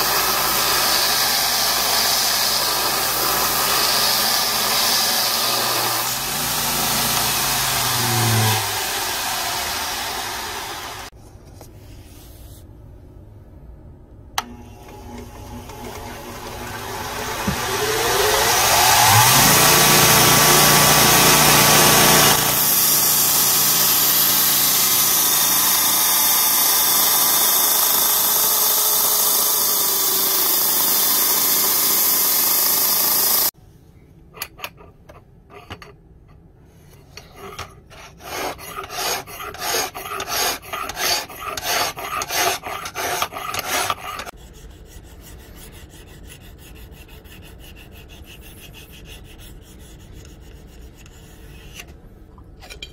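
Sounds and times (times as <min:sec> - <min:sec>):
bench grinder whining: 0:00.0 - 0:11.1, 0:14.4 - 0:33.5
blade grinding on sanding belt: 0:00.0 - 0:11.1, 0:14.9 - 0:33.5, 0:38.0 - 0:44.4
hand file scraping blade: 0:00.0 - 0:11.2, 0:15.1 - 0:33.5, 0:37.1 - 0:52.0.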